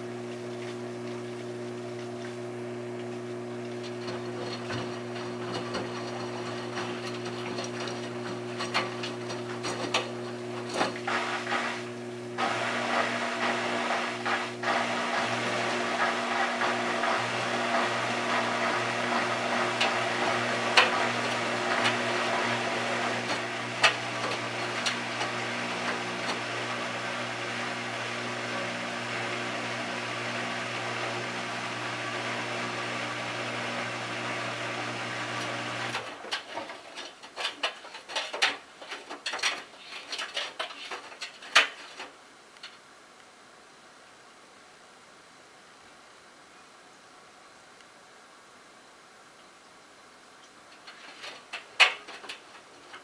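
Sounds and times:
washing machine motor hum: 0.0s - 37.5s.

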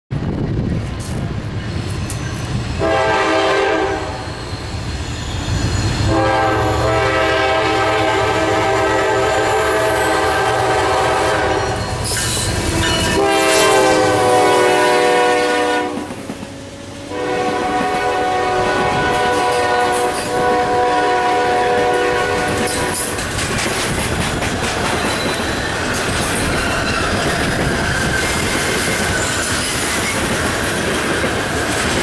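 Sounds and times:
train cars rolling on rails: 0.1s - 32.0s
train rumble: 0.1s - 32.0s
locomotive air horn: 2.8s - 4.3s, 6.0s - 16.2s, 17.0s - 23.2s.

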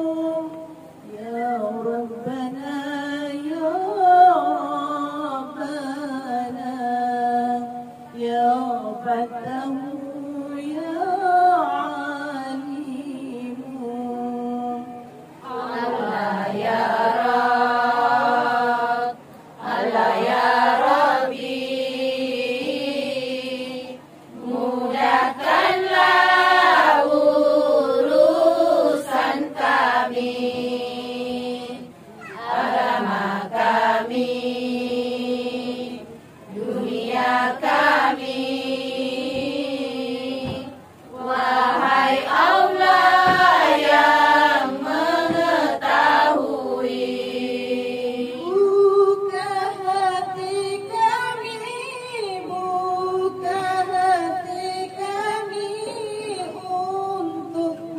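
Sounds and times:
women singing devotional chant: 0.0s - 57.9s.

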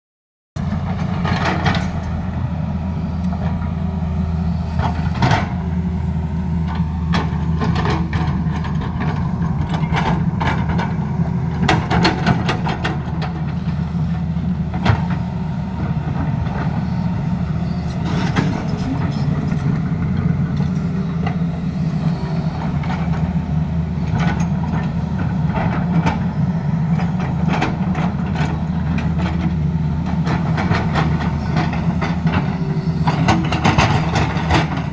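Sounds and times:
excavator diesel engine running: 0.6s - 34.9s
bucket and tracks clanking: 6.6s - 16.9s, 17.6s - 34.9s.

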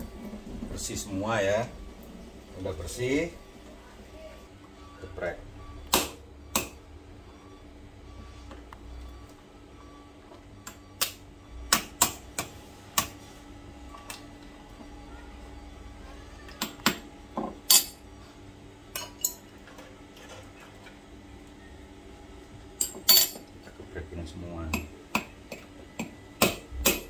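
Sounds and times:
mallet cracking crab shell: 26.4s - 27.0s.

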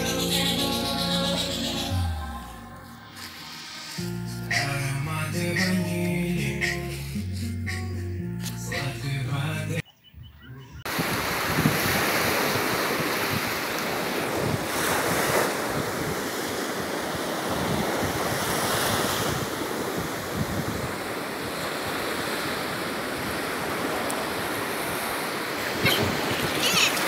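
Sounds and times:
wind buffeting microphone: 10.2s - 21.4s, 23.2s - 27.0s
water lapping at shoreline: 10.9s - 27.0s.

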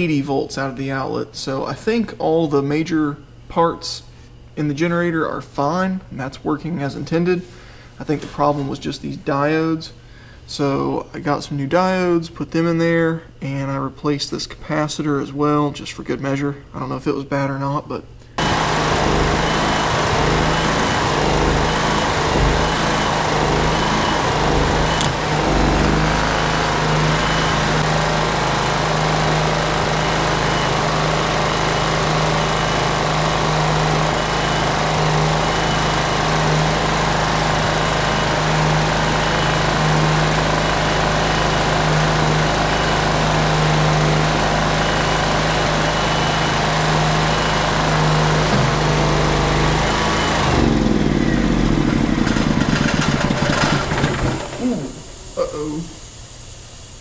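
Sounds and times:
generator engine running: 18.4s - 56.4s.

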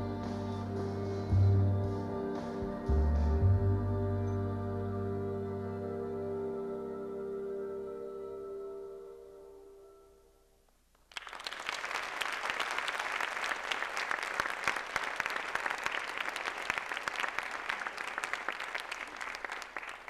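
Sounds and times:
sustained music notes: 0.0s - 10.5s
audience applauding: 11.0s - 20.0s.

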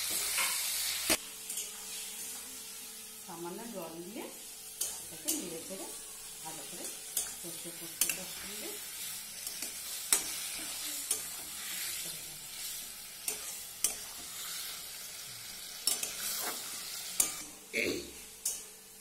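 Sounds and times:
frying sizzle: 0.0s - 19.0s
metal spatula scraping pan: 15.7s - 17.4s.

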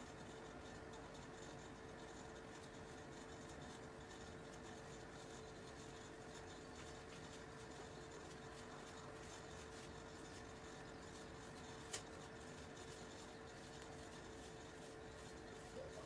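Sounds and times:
steady hum: 0.0s - 16.0s
toothbrush scratching hair: 3.4s - 16.0s.

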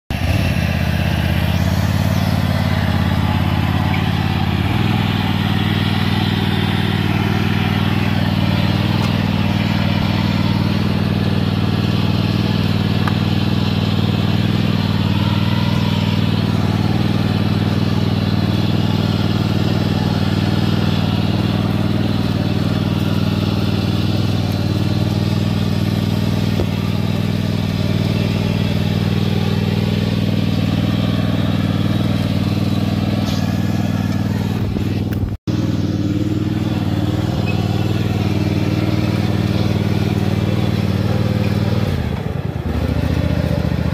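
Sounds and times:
riding lawn mower engine running: 0.1s - 43.9s.

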